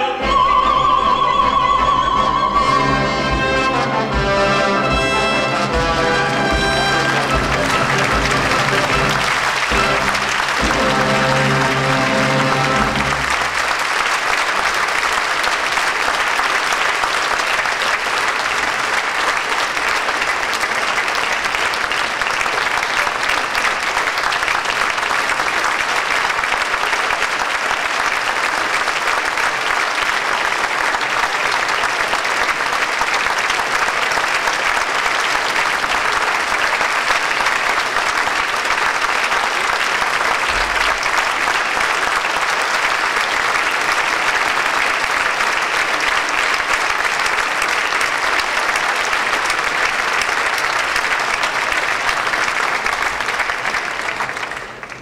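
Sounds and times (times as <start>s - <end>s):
audience applauding: 0.0s - 55.0s
music chord: 2.6s - 13.4s.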